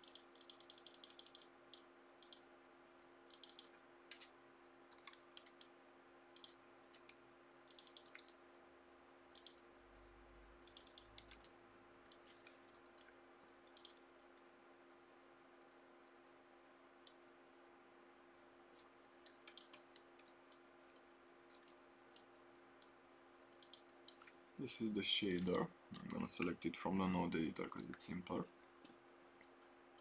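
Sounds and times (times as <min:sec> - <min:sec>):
mouse and keyboard clicks: 0:00.0 - 0:02.4, 0:03.3 - 0:04.3, 0:04.9 - 0:05.8, 0:06.4 - 0:08.6, 0:09.4 - 0:09.6, 0:10.6 - 0:14.0, 0:18.8 - 0:22.3, 0:23.6 - 0:24.4, 0:25.2 - 0:26.3
low electrical hum: 0:00.0 - 0:30.0.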